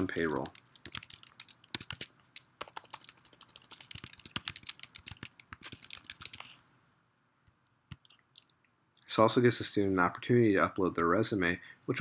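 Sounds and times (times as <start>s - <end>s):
typing on computer keyboard: 0.0s - 6.6s.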